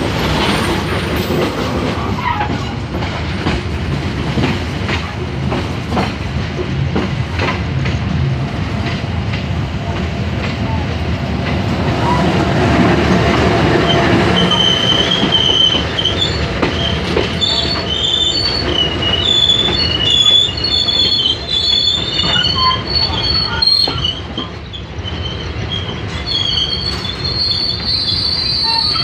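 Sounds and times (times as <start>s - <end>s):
train coaches rumbling past: 0.0s - 29.0s
train wheels squealing: 0.2s - 2.8s, 13.8s - 29.0s.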